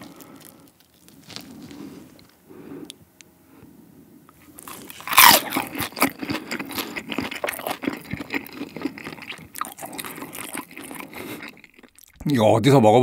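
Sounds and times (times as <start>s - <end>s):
crunchy bite: 0.0s - 2.3s, 4.5s - 12.2s
crunchy chewing: 0.0s - 3.0s, 4.3s - 12.2s.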